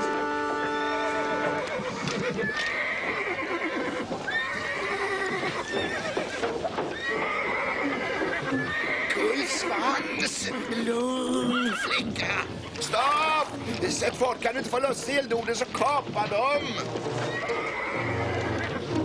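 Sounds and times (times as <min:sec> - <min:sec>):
hooves clattering on cobblestones: 0:00.0 - 0:19.0
cartoon horse whinnying: 0:00.6 - 0:12.4, 0:16.5 - 0:18.9.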